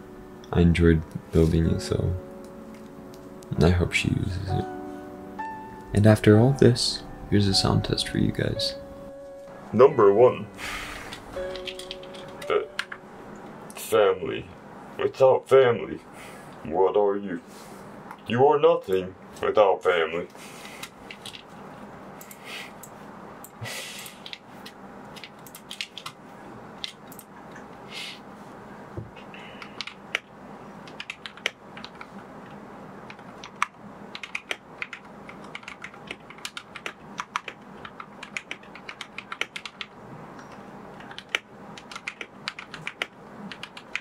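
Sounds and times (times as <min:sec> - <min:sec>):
mechanical keyboard typing: 0:11.4 - 0:13.0, 0:25.1 - 0:26.2, 0:29.6 - 0:32.1, 0:33.1 - 0:44.0.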